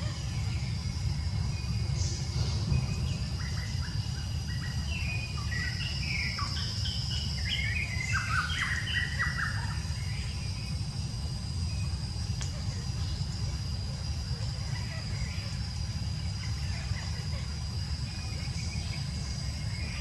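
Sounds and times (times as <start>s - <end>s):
low rumble: 0.0s - 8.0s
bird chirping: 0.0s - 11.1s
high insect drone: 0.0s - 20.0s.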